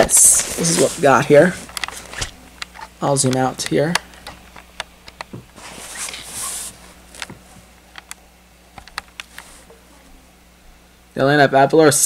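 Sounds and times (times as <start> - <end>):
soft rustle: 0.1 - 2.4, 5.6 - 7.8, 9.2 - 10.1.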